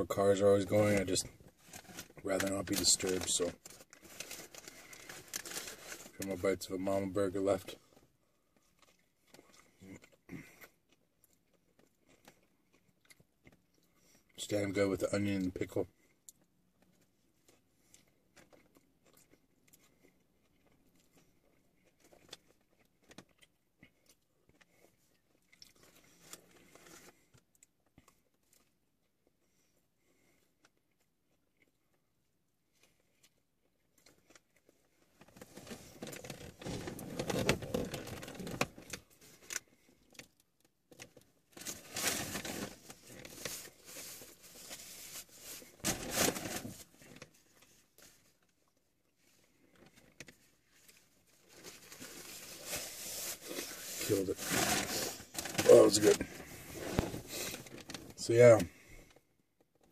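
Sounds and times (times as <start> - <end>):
paper wrapper rustling: 1.7 - 6.2, 35.3 - 39.0, 41.5 - 48.2, 50.7 - 58.6
person chewing: 8.6 - 14.3, 16.2 - 29.4.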